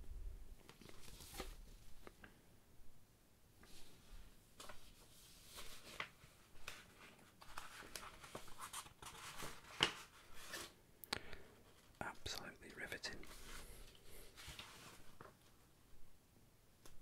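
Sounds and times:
paper crackle: 0.6s - 2.1s, 4.6s - 10.7s
paper rustling: 0.6s - 2.2s, 3.6s - 10.8s, 13.2s - 15.6s.

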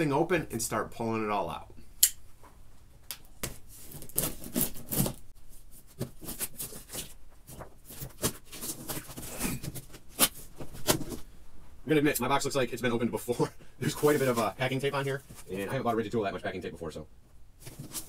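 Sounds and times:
cardboard rustling and crackling: 3.4s - 11.3s, 17.6s - 18.0s
packing tape tearing: 3.9s - 5.2s.

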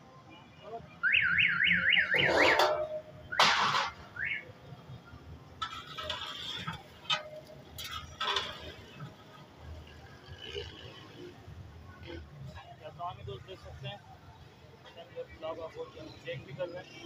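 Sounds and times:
metal ladle scraping a metal pot: 5.6s - 9.2s.

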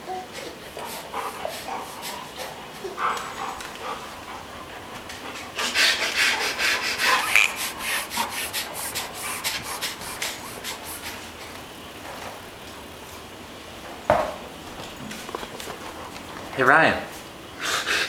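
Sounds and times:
baby snorting through nose: 5.6s - 10.8s.

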